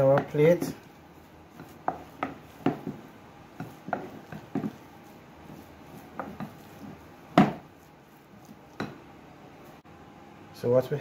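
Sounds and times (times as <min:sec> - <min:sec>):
spoon mashing potatoes: 0:00.0 - 0:09.8.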